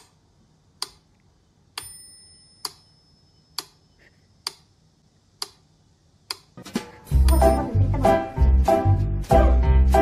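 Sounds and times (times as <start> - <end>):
faint high ringing tone: 1.8 - 4.0
metronome ticking: 7.2 - 8.0.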